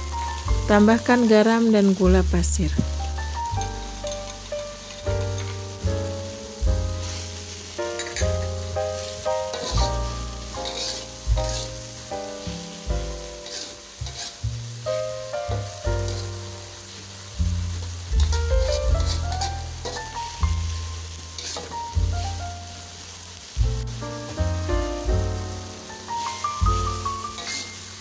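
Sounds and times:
background music: 0:00.0 - 0:28.0
vegetables sizzling in a wok: 0:00.0 - 0:28.0
spatula scraping a wok: 0:02.9 - 0:05.8, 0:07.0 - 0:22.4, 0:26.1 - 0:28.0.

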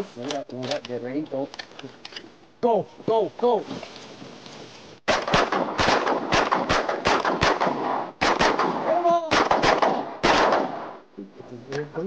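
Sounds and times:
shotgun blasts: 0:05.1 - 0:11.0.

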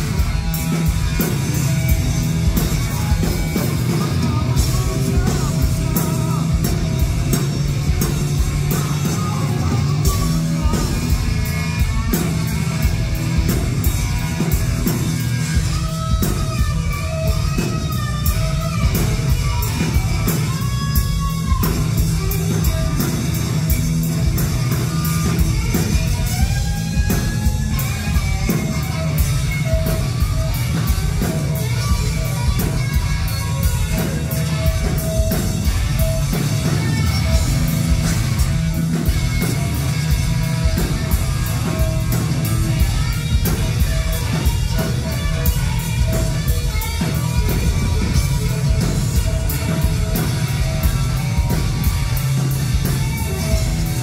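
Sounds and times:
bass guitar: 0:00.0 - 0:54.0
drum kit: 0:00.0 - 0:54.0
electric guitar lead lines: 0:00.0 - 0:54.0.

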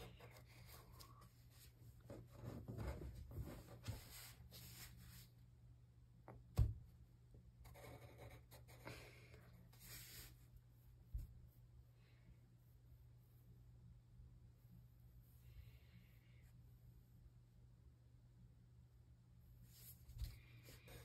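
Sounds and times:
pencil scratching on paper: 0:07.6 - 0:09.1.

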